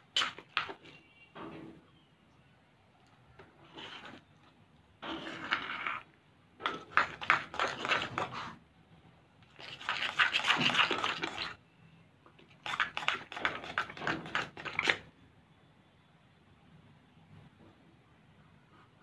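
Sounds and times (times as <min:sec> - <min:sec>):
spoon stirring slime in a bowl: 0:00.0 - 0:01.2, 0:03.4 - 0:08.6, 0:09.4 - 0:11.6, 0:12.3 - 0:15.1.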